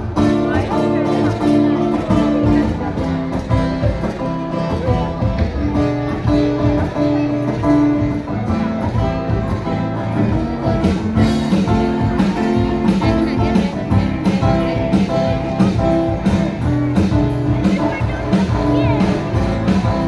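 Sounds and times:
acoustic guitar and keyboard music: 0.0s - 20.0s.

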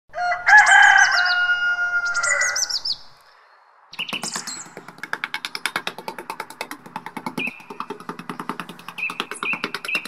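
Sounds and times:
birds chirping: 0.6s - 10.0s
clicking percussion beat: 4.0s - 10.0s.

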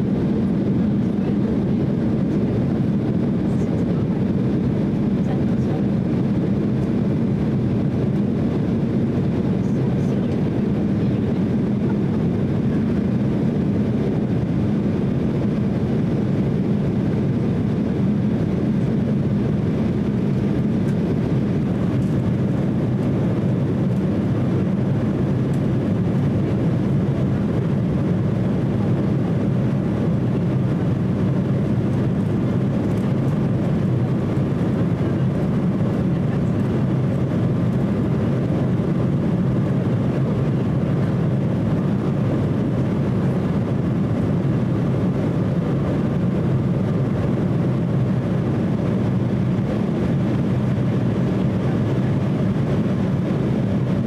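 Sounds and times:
air rushing along fuselage: 0.0s - 54.0s
jet engines droning: 0.0s - 54.0s.

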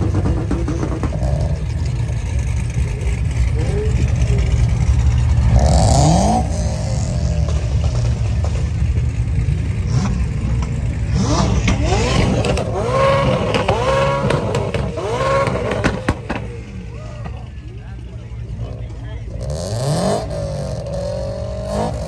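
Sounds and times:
car engine revving: 0.0s - 22.0s
engines idling: 0.0s - 22.0s.

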